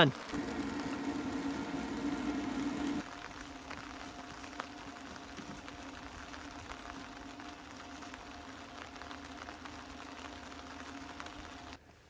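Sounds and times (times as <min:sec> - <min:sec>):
ice maker humming: 0:00.3 - 0:11.8.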